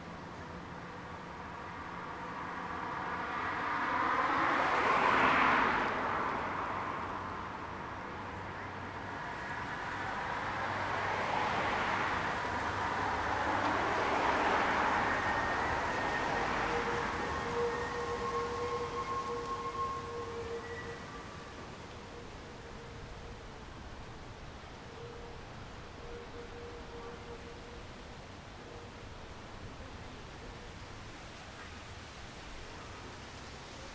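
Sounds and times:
tram running on track: 0:00.4 - 0:24.6
faint whining tones: 0:08.0 - 0:33.2.

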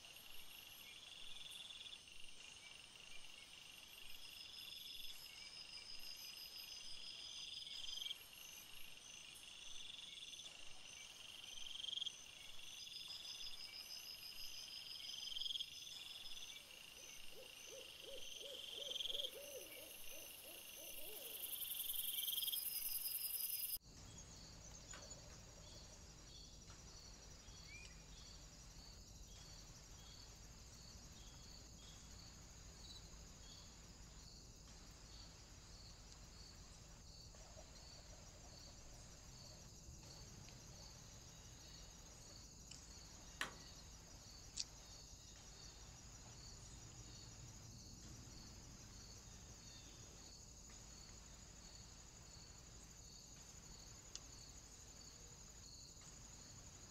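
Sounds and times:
crickets and insects chirping: 0:00.0 - 0:56.9
hoot-like calls: 0:17.3 - 0:21.4.

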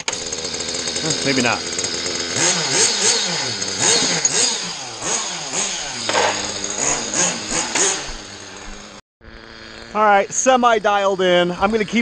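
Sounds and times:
rc car engine revving: 0:00.0 - 0:12.0.

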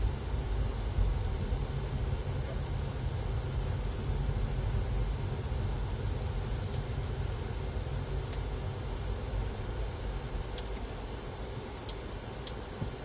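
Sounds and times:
faint ticks: 0:08.3 - 0:08.5, 0:10.3 - 0:13.0.

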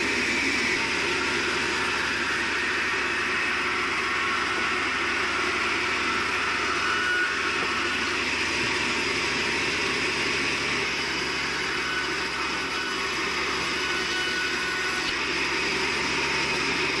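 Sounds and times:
sawmill machinery drone: 0:00.0 - 0:17.0.

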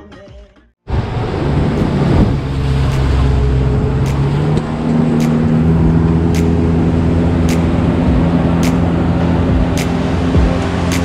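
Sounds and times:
boat motor running: 0:00.9 - 0:11.0
wind and water rushing: 0:00.9 - 0:11.0
light sharp ticks: 0:06.3 - 0:06.6.

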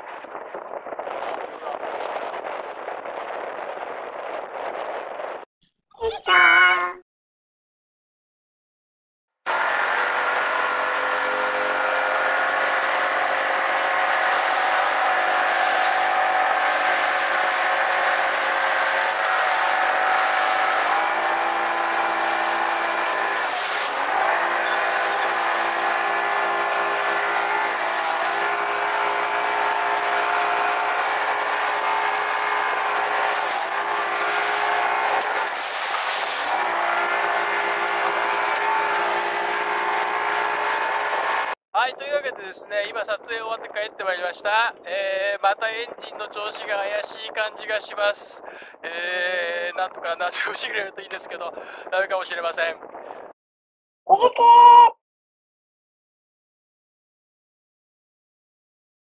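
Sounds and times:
water and wind noise: 0:00.0 - 0:05.4, 0:09.7 - 0:41.6, 0:52.7 - 0:53.4.

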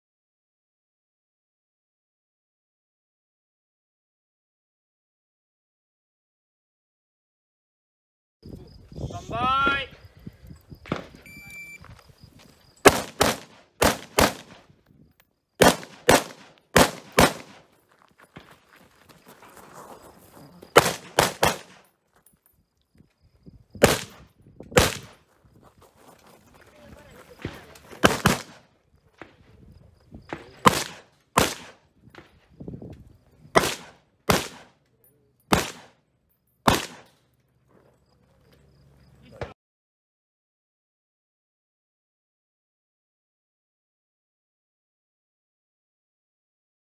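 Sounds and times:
shot timer beep: 0:11.2 - 0:11.8
rifle shots: 0:12.8 - 0:14.7, 0:15.6 - 0:17.7, 0:20.8 - 0:21.8, 0:23.8 - 0:25.2, 0:27.4 - 0:28.7, 0:30.3 - 0:31.8, 0:33.5 - 0:34.8, 0:35.5 - 0:36.0, 0:36.7 - 0:37.2
shuffling: 0:17.8 - 0:20.8.

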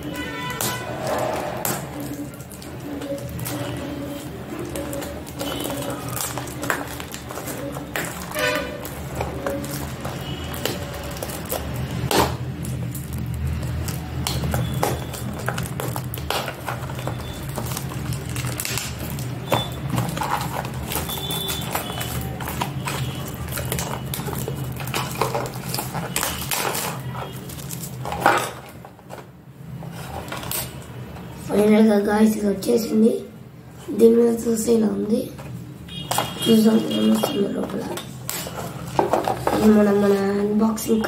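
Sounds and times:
plastic shrink-wrap crinkling: 0:02.0 - 0:30.8.

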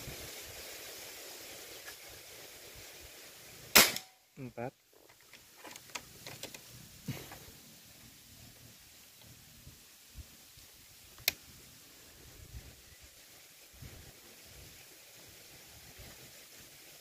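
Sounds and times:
air rifle shot: 0:03.8 - 0:04.2
faint clicks: 0:11.1 - 0:11.4
wind on microphone: 0:12.1 - 0:14.8.

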